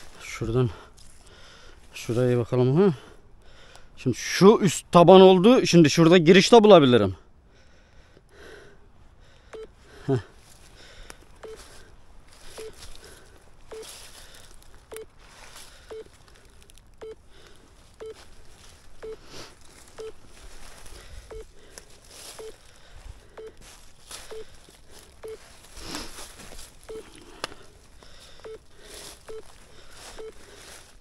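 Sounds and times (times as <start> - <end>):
metal detector beeps: 9.5 - 9.7, 11.4 - 11.8, 12.4 - 12.8, 13.7 - 14.0, 14.9 - 15.2, 15.8 - 16.2, 17.0 - 17.2, 18.0 - 18.3, 18.9 - 20.3, 21.0 - 21.6, 22.2 - 22.6, 23.3 - 25.5, 26.8 - 27.7, 28.3 - 30.6
rustling and scuffing: 18.1 - 28.2.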